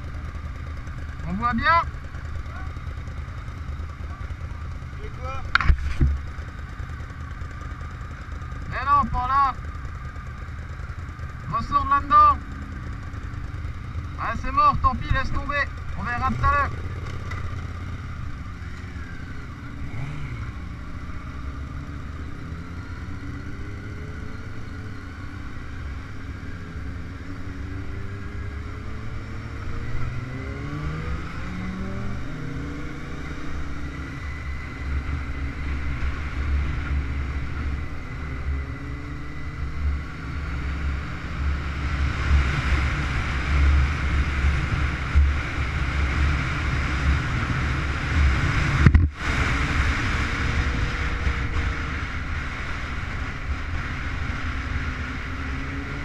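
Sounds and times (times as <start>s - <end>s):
motorcycle engine accelerating: 0.0s - 56.0s
wind noise on microphone: 46.7s - 52.3s.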